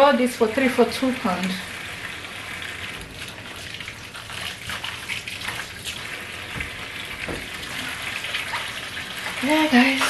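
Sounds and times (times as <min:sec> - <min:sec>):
tap water splashing into sink: 0:02.6 - 0:10.0.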